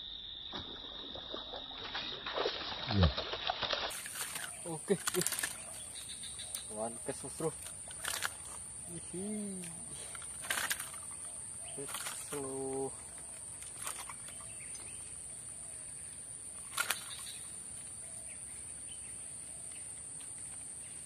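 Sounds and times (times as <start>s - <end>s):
high-pitched insect drone: 0.0s - 14.1s.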